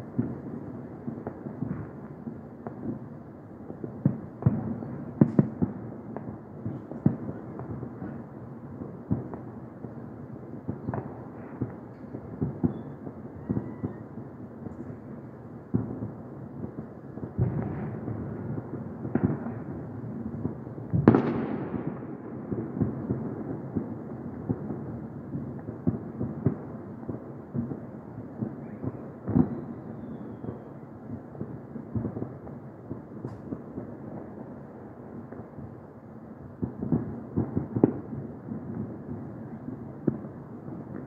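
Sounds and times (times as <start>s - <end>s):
fireworks bangs: 0.0s - 35.8s, 36.5s - 41.0s
fireworks small pops: 4.0s - 8.2s, 33.2s - 34.3s.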